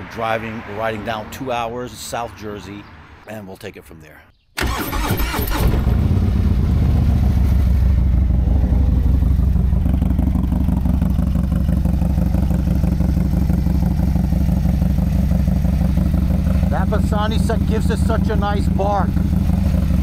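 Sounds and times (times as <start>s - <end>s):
motorcycle engine idling: 6.0s - 20.0s.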